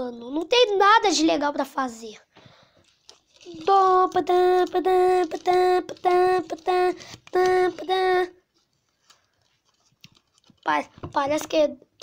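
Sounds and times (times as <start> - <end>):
child chanting one syllable: 3.5 - 8.4.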